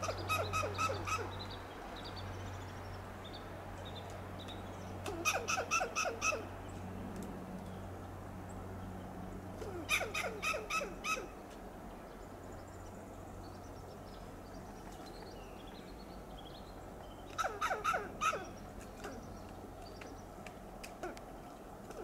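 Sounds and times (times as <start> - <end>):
squirrel alarm barks: 0.0 - 1.4, 5.0 - 6.5, 9.8 - 11.4, 17.3 - 18.6.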